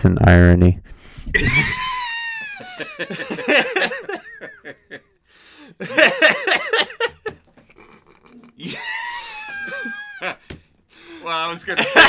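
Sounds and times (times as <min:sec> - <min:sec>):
person laughing: 0:01.3 - 0:05.1, 0:05.8 - 0:10.5, 0:11.7 - 0:12.0.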